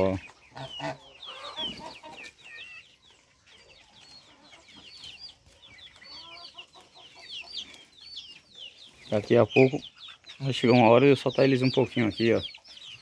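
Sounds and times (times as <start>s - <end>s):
chicks peeping: 0.0s - 13.0s
hen clucking: 0.0s - 13.0s.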